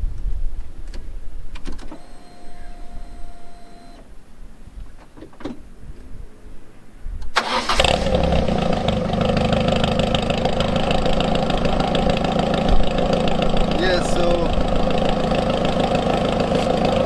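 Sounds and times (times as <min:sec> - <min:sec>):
car engine cranking and starting: 0:07.2 - 0:17.0
car engine idling: 0:07.4 - 0:17.0.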